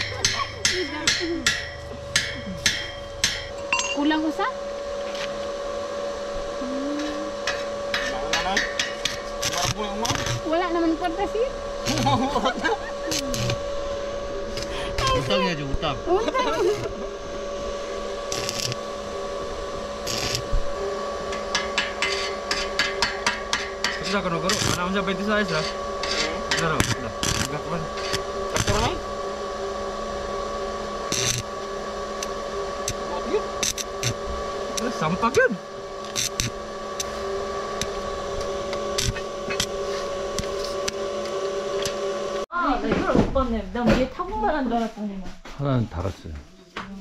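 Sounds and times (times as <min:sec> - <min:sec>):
sharp metallic taps on steel: 0:00.0 - 0:03.5
steady hum: 0:00.0 - 0:47.0
welding hiss: 0:07.0 - 0:29.1, 0:31.0 - 0:42.4.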